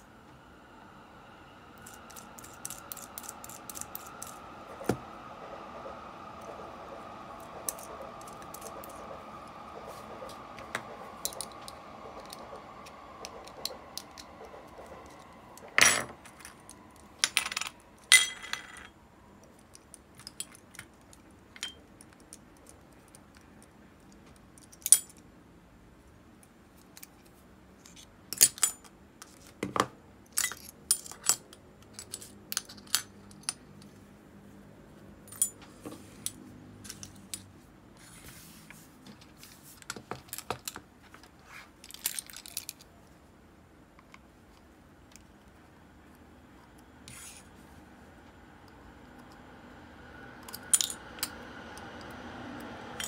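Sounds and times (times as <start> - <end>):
metal parts clinking on table: 15.8 - 16.6, 17.2 - 18.9, 24.6 - 25.2, 30.3 - 33.6, 35.3 - 37.5, 50.5 - 51.3.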